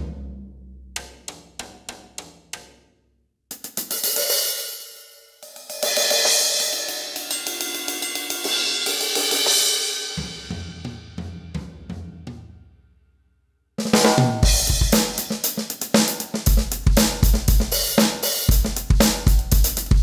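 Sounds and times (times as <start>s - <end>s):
cymbal crashes: 5.4s - 10.8s, 14.0s - 15.4s
kick drum: 16.5s - 17.7s, 18.5s - 20.0s.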